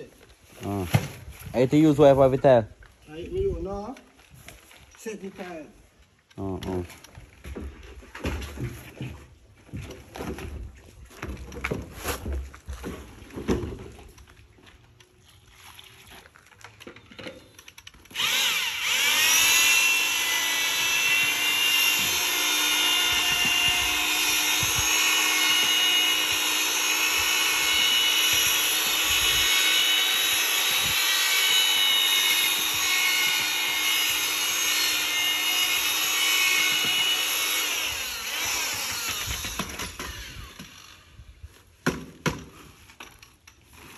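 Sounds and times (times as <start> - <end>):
electric drill mixing: 18.1 - 41.1.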